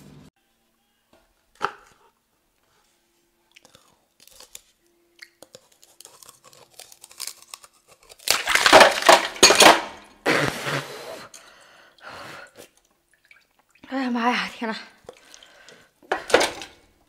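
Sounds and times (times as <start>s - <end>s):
ice being chewed crunching: 3.5s - 9.1s.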